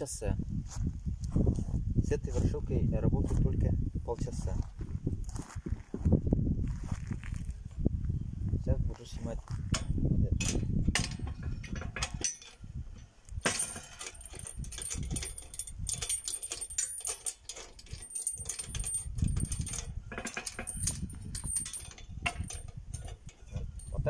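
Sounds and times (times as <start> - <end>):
metal chains jingling: 10.5 - 12.6, 13.4 - 24.0.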